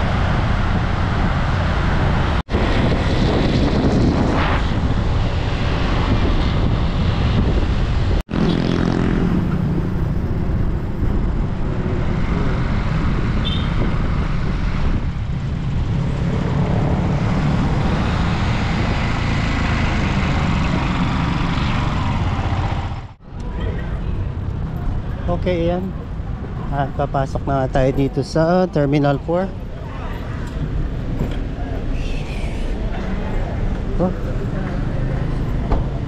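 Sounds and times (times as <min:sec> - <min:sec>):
traffic rumble: 0:00.0 - 0:36.0
motorcycle engine: 0:08.3 - 0:11.0.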